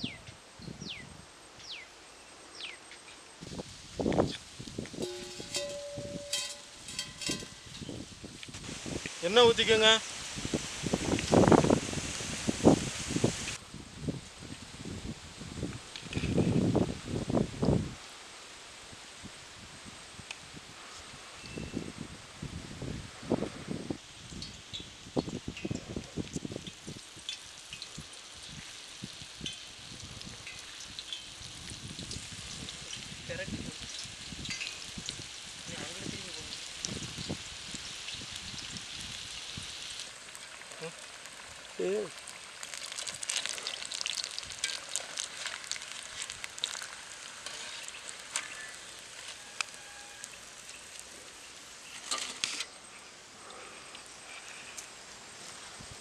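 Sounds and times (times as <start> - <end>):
slices deep-frying in oil: 24.0 - 55.6.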